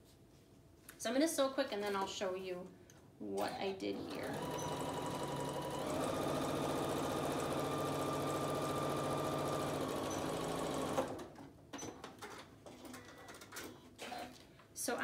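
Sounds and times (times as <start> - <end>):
sewing machine running: 4.0 - 11.3.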